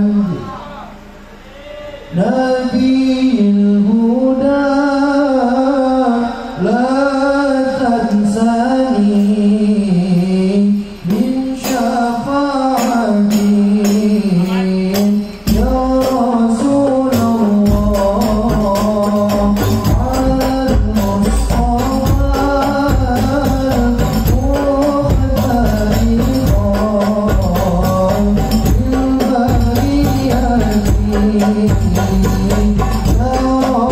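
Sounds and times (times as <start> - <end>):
man singing through microphone: 0.0 - 1.0, 2.0 - 33.9
deep bass drum: 15.5 - 33.9.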